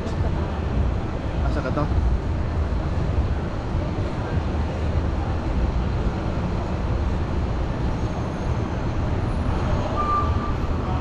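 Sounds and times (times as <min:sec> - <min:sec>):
low rumble of street noise: 0:00.0 - 0:11.0.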